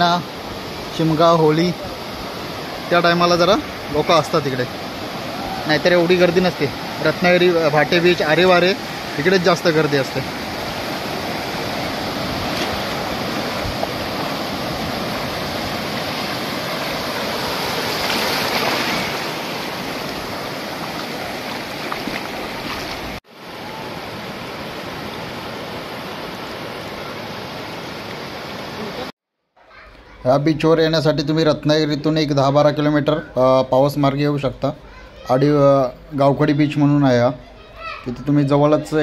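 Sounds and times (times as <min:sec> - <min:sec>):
waves breaking on sandy beach: 0:00.0 - 0:29.1.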